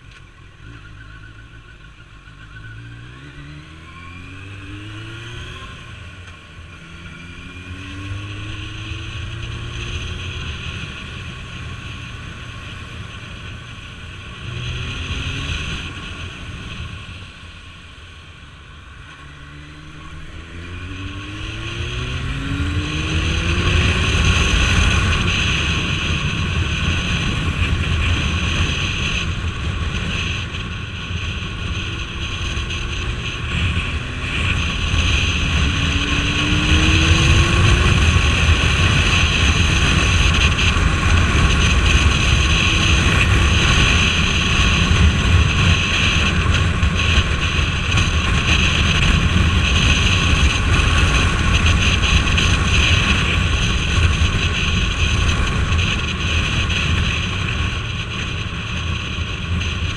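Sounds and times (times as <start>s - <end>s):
motorcycle engine drone: 0.0s - 59.9s
wind noise on microphone: 19.8s - 59.9s.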